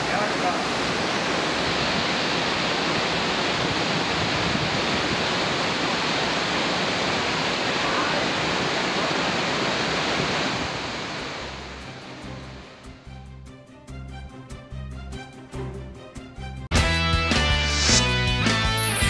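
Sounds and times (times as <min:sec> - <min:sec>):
waterfall roaring: 0:00.0 - 0:12.8.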